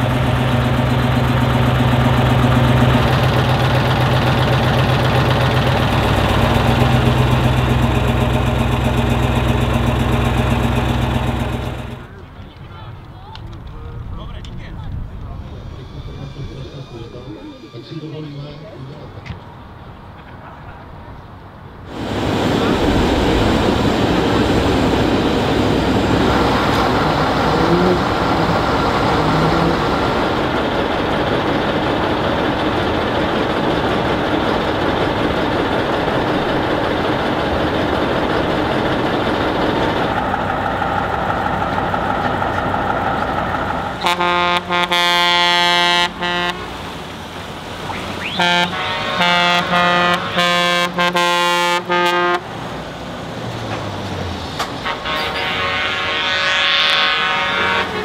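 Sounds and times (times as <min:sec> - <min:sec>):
heavy truck engines running: 0:00.0 - 0:58.0
truck air horn blasts: 0:26.8 - 0:29.8, 0:44.0 - 0:46.8, 0:48.2 - 0:52.5, 0:54.8 - 0:58.0.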